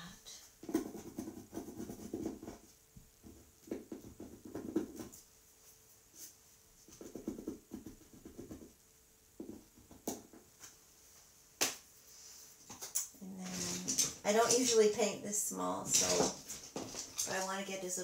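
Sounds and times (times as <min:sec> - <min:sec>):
paintbrush scratching on panel: 0:00.6 - 0:05.3.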